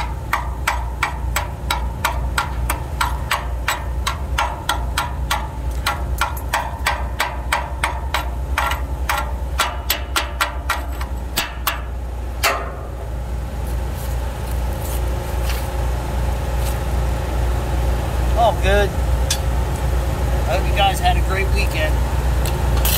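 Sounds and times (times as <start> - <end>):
chipping hammer metallic taps: 0.0 - 12.7
low engine hum: 0.0 - 22.9.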